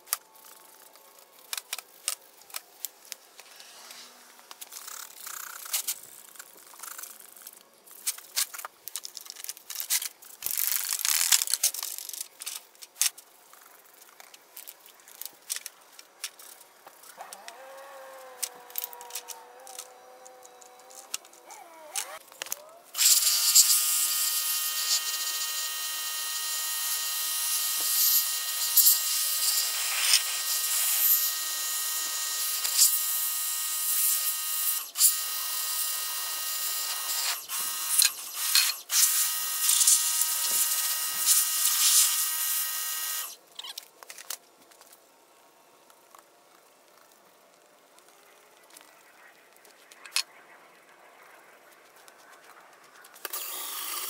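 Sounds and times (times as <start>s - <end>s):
pressure washer spraying: 23.0s - 25.5s, 38.4s - 42.2s
ratchet wrench clicking: 36.9s - 42.5s.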